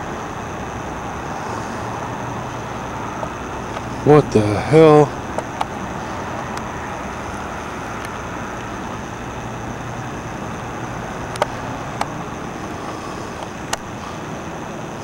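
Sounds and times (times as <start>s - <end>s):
distant engine rumble: 0.0s - 15.0s
sharp clicks: 11.3s - 12.3s, 13.4s - 13.9s.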